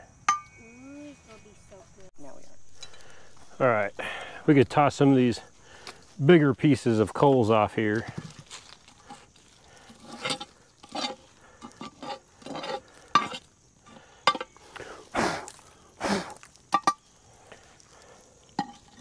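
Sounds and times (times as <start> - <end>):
coals scraped off cast iron: 7.9 - 19.0.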